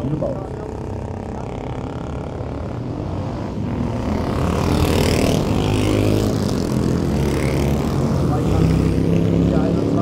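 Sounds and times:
racing motorcycles revving: 0:00.0 - 0:10.0.

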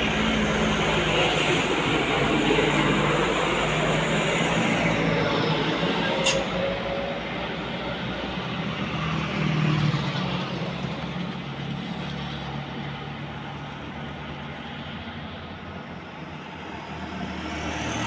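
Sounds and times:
diesel truck engines droning: 0:00.0 - 0:18.0
sharp click: 0:06.2 - 0:06.6.

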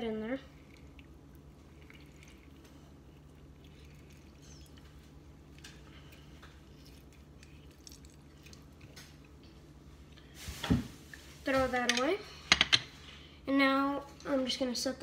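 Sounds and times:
low steady hum: 0:00.0 - 0:15.0
lime squishing in squeezer: 0:00.5 - 0:10.3.

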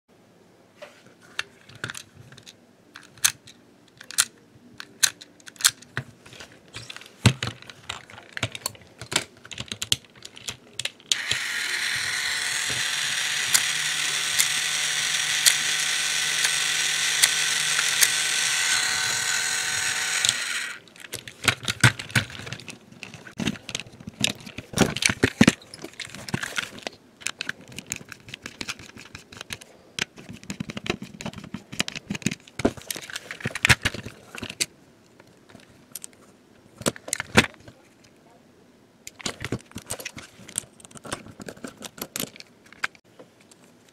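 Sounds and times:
clicks from handling plastic toy: 0:01.4 - 0:06.0, 0:39.1 - 0:43.9
toy motor whirring: 0:11.1 - 0:21.0.

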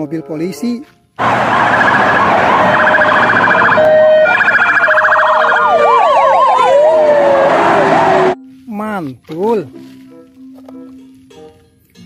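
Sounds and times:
police car siren: 0:01.2 - 0:08.4.

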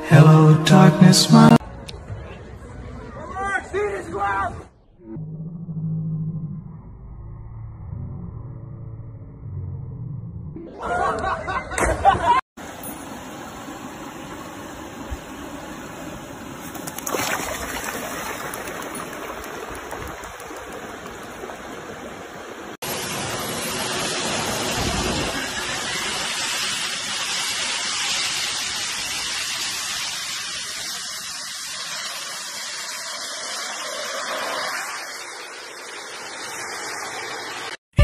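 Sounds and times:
rushing hiss: 0:22.8 - 0:37.8.

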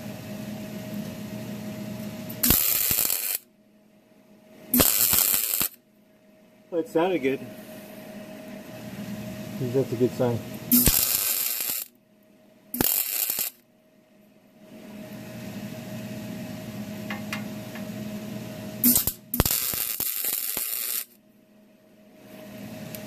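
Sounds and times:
low steady hum: 0:00.0 - 0:23.0
welding arc crackling: 0:02.3 - 0:03.5, 0:04.7 - 0:05.8, 0:10.7 - 0:11.9, 0:12.8 - 0:13.6, 0:18.8 - 0:21.2.

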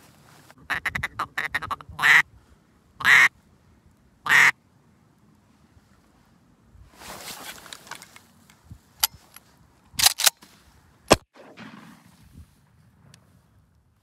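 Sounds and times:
rustling of dry grass: 0:00.0 - 0:14.0
shotgun shot: 0:11.1 - 0:12.3.

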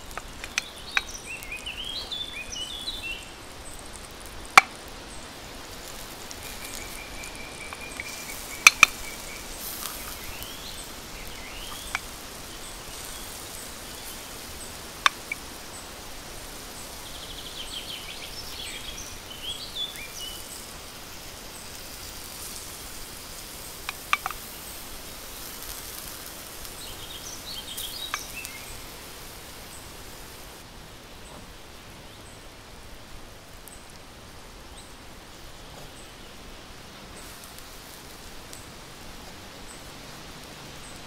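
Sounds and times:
birds chirping: 0:00.0 - 0:30.6
faint high ticking: 0:00.0 - 0:30.6
steady hiss: 0:00.0 - 0:41.0
sharp clicks: 0:00.1 - 0:01.1, 0:05.9 - 0:10.2.

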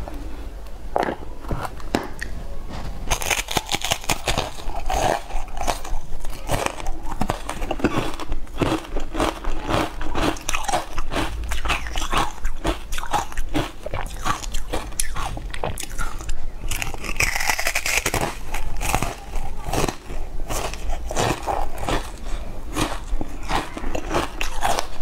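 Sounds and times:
biting and chewing: 0:03.1 - 0:25.0
mouth clicks: 0:10.4 - 0:18.2.

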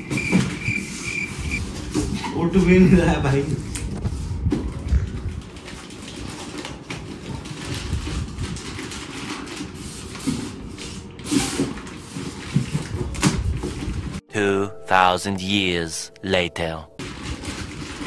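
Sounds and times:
plastic wrap and cardboard crinkling: 0:01.6 - 0:14.2, 0:17.0 - 0:18.0.

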